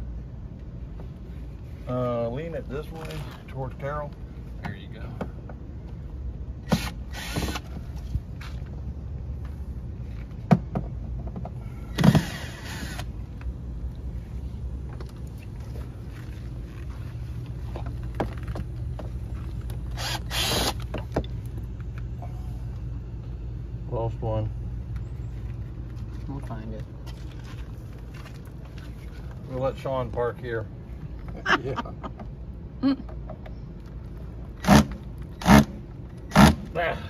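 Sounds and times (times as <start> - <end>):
steady low rumble: 0.0 - 37.0
cordless drill driving screws: 6.6 - 7.7, 12.0 - 13.1, 20.0 - 20.8.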